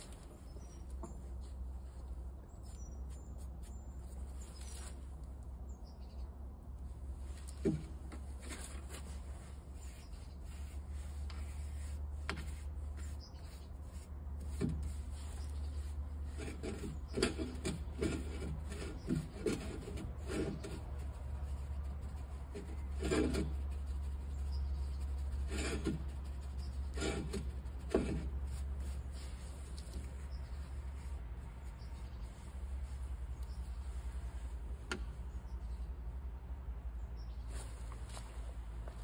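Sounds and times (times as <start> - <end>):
paintbrush rubbing on steel: 8.4 - 34.6.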